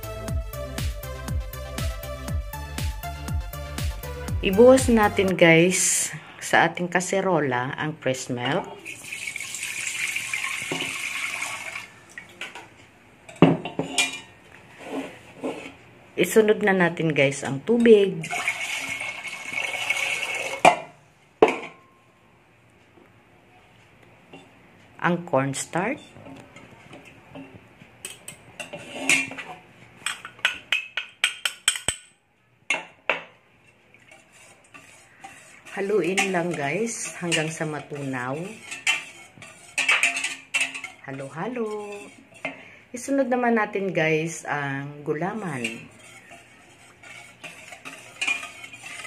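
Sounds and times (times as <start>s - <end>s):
milk pouring into metal pot: 8.8s - 12.3s, 18.2s - 20.6s
cornstarch scraped from bowl: 14.7s - 15.8s, 34.1s - 39.9s, 45.6s - 49.0s.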